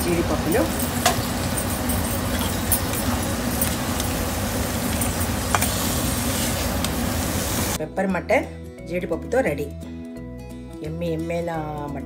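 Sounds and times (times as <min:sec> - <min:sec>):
metal spoon scraping iron pan: 0:04.9 - 0:06.7.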